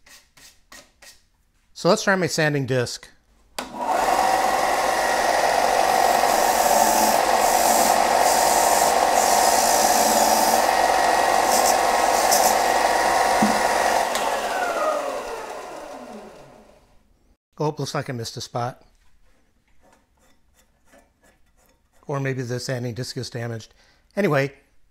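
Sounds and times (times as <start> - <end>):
motor winding down: 3.6 - 16.9
sander motor running: 3.6 - 16.9
stick rubbing on sanding disc: 6.2 - 12.7.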